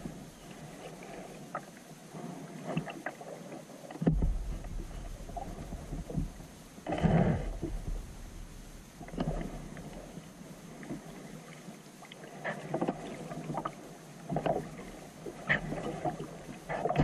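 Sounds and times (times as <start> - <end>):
thump: 4.0 - 4.8
paddle splashing in water: 9.0 - 17.0.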